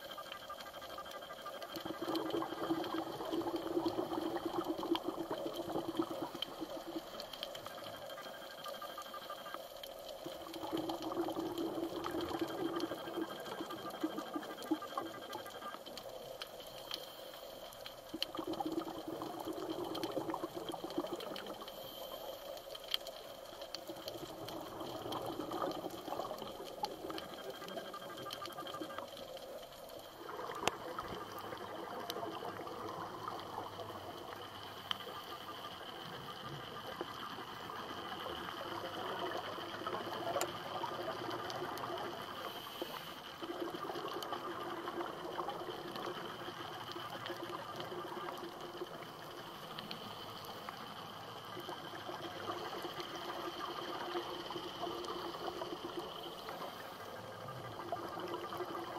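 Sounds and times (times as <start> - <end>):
faint clicks and crackles: 0.0 - 58.9
underwater water hiss: 16.0 - 58.9.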